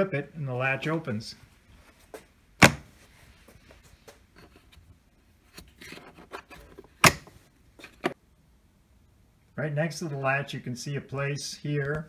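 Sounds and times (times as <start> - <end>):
plastic latches snapping: 7.0 - 7.3.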